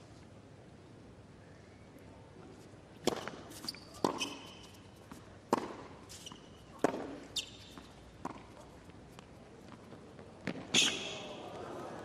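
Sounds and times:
rackets striking tennis ball: 3.0 - 8.6
shoe squeaks on court: 3.5 - 4.9, 6.1 - 7.9, 10.7 - 11.3.

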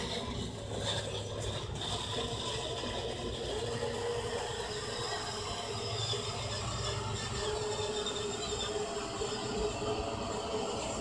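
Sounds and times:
toy car electric motor running: 0.0 - 11.0.

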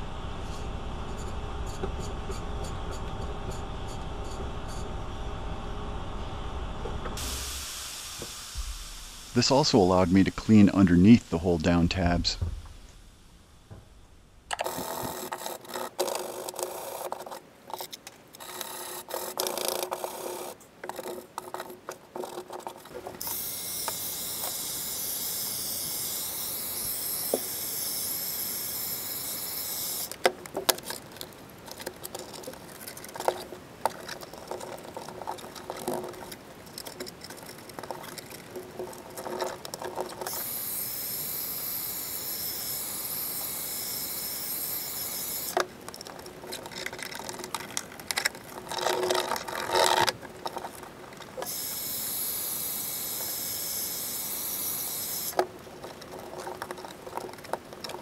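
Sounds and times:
heat gun blower hissing: 0.0 - 13.1, 23.2 - 30.1, 40.3 - 45.6, 51.4 - 55.4.

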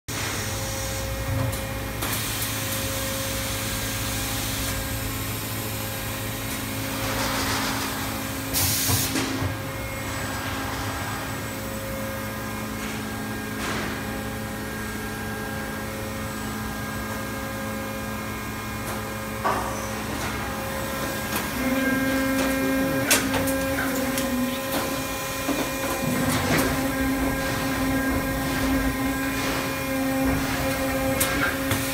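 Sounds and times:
machine motors humming: 9.3 - 31.9.

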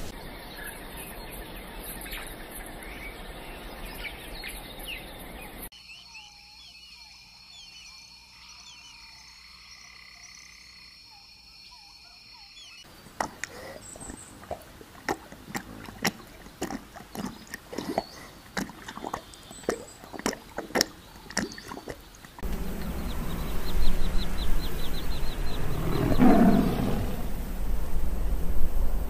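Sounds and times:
tiger lapping water: 12.9 - 27.9
tiger growling: 22.4 - 27.9.

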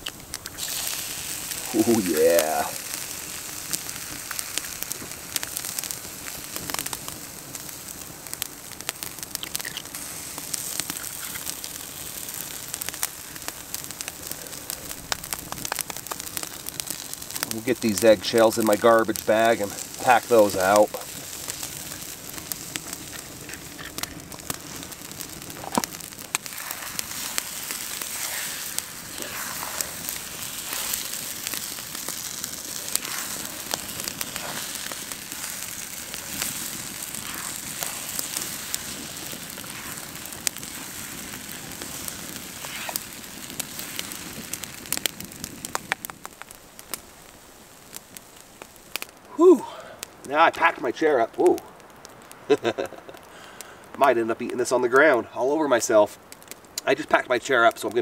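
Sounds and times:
food sizzling in a pan: 0.0 - 49.6, 52.4 - 53.2
wood fire crackling and popping: 0.0 - 58.0.

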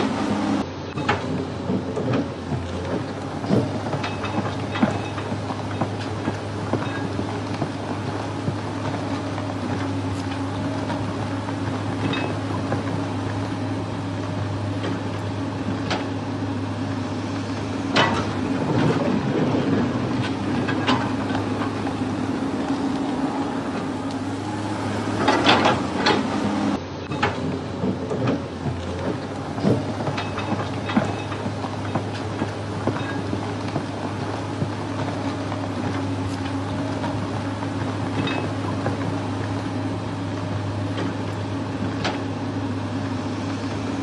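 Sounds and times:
vehicle engine drone: 0.0 - 44.0
clanks and knocks: 0.9 - 13.4, 17.9 - 24.2, 25.2 - 26.4, 27.1 - 39.2.

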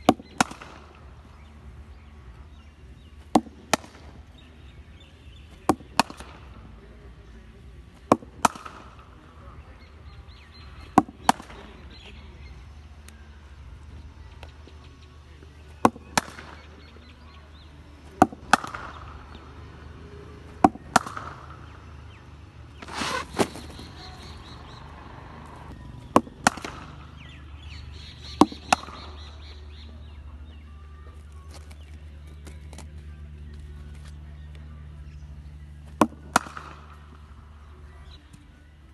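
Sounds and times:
cricket bat hitting ball: 0.0 - 1.5, 3.0 - 4.5, 5.5 - 6.8, 7.8 - 9.2, 10.4 - 12.2, 15.7 - 17.0, 18.0 - 22.1, 22.7 - 24.0, 26.1 - 27.5, 28.2 - 29.5, 35.8 - 37.4
steady low hum: 0.0 - 38.9.

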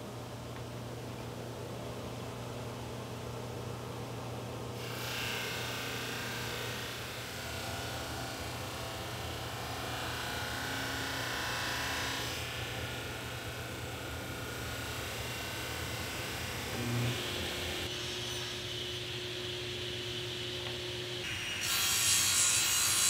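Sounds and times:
drum sander humming: 15.6 - 21.3.

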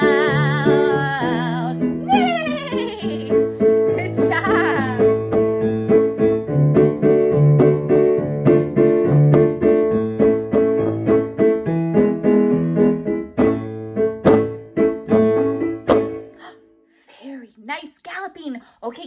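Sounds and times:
upbeat keyboard tune: 1.9 - 16.4.

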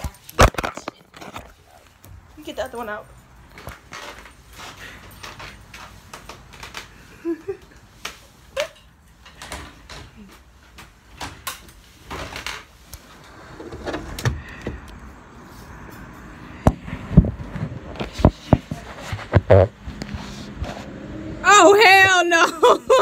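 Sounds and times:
loud thumps: 16.6 - 19.8.

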